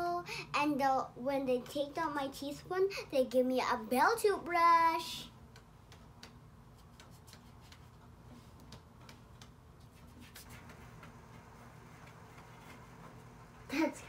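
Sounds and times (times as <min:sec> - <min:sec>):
paintbrush dabbing on paper: 0:06.6 - 0:10.8.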